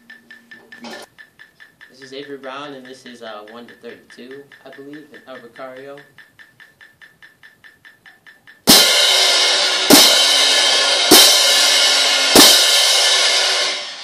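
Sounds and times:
crash cymbals clashing: 8.7 - 14.0.

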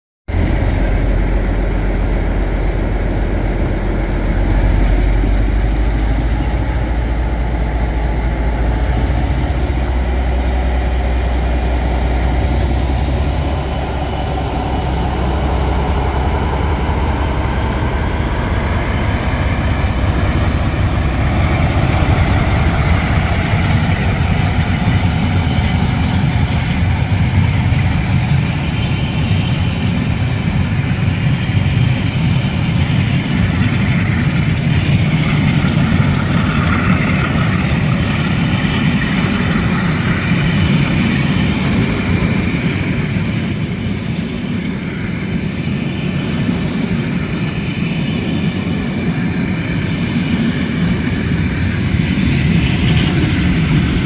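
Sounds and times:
diesel locomotive engine humming: 0.3 - 54.0
train wheels rolling over rails: 0.3 - 54.0.

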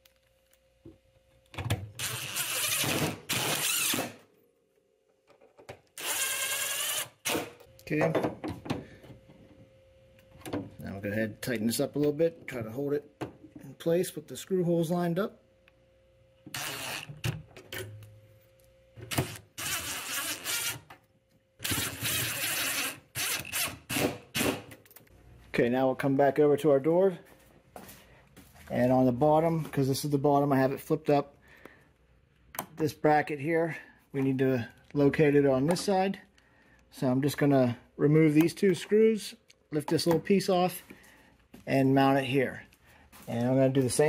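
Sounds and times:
cordless drill driving screw: 2.0 - 4.2, 6.0 - 7.5, 16.5 - 17.2, 19.1 - 20.9, 21.6 - 24.6.

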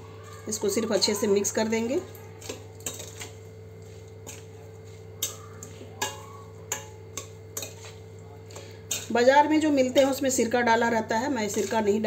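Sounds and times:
spoon clinking against steel bowl: 0.5 - 3.5, 5.2 - 10.4, 11.3 - 12.0.

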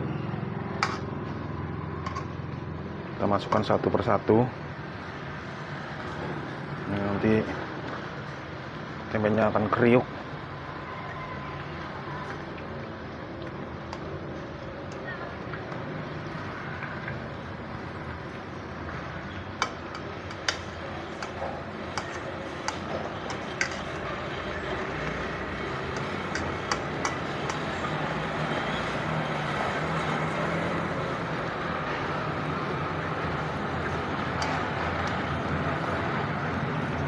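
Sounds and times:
food deep-frying in hot oil: 0.7 - 37.0
oil popping: 12.2 - 28.5.

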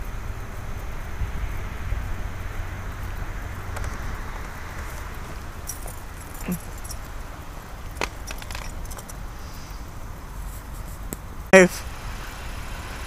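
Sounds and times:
traffic rumble: 0.0 - 13.0
wind: 0.0 - 13.0
keys jingling: 3.8 - 9.3.

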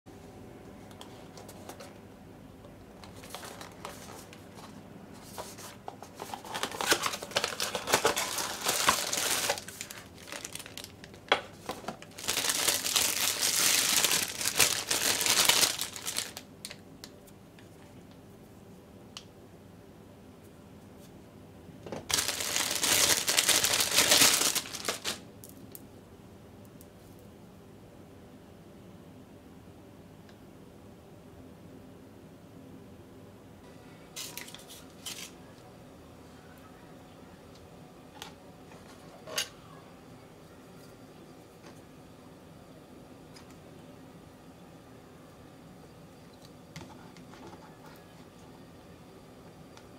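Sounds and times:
plastic bag crinkling: 3.0 - 4.7, 6.0 - 16.8, 22.1 - 25.6.

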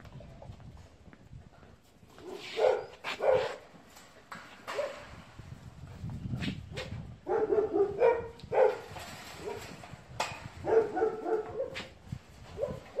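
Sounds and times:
dog barking: 2.2 - 3.6, 4.8 - 5.0, 7.3 - 8.8, 10.6 - 11.9, 12.6 - 13.0.

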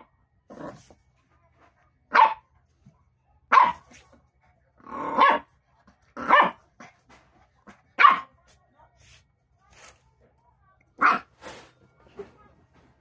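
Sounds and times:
puppy barking: 2.1 - 2.5, 3.5 - 4.0, 5.0 - 5.5, 6.2 - 6.6, 8.0 - 8.4, 11.0 - 11.3.

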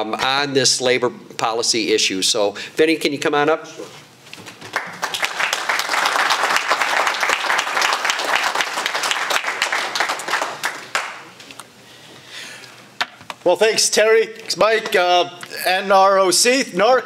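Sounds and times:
audience applauding: 4.7 - 11.3.

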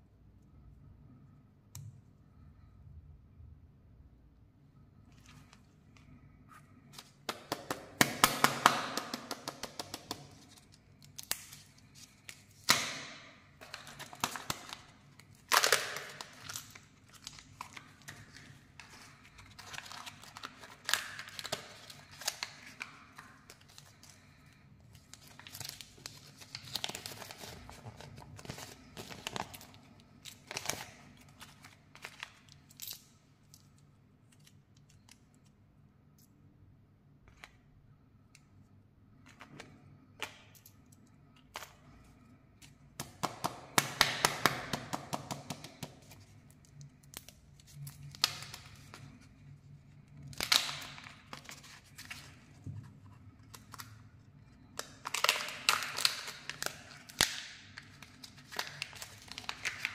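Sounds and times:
wrapper crinkling: 13.6 - 33.2, 54.8 - 59.9.

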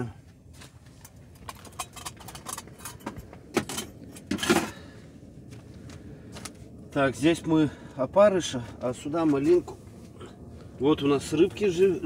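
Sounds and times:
fishing tackle clicking and rattling: 1.4 - 3.1.

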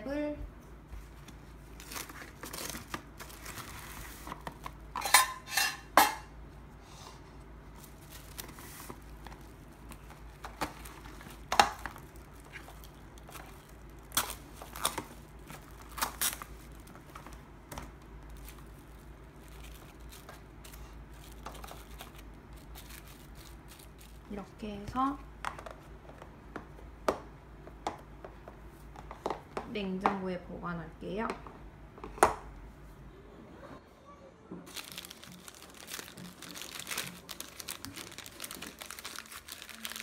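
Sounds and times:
cling wrap rustling: 7.7 - 24.5, 34.7 - 40.0.

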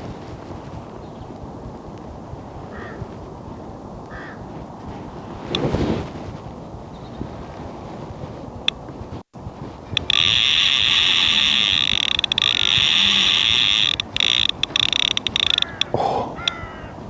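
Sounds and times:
wind noise on microphone: 0.0 - 17.0
fishing reel drag screaming: 10.0 - 15.9.

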